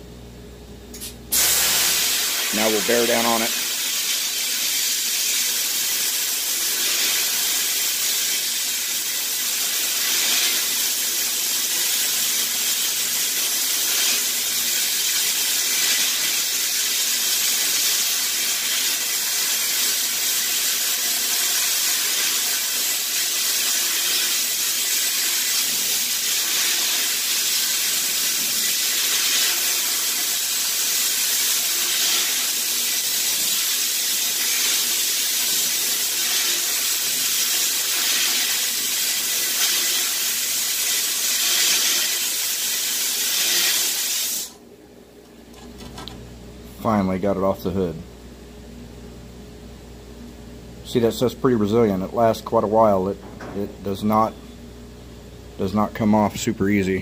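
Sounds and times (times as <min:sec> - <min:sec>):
sandblast nozzle hissing: 0:01.3 - 0:44.6.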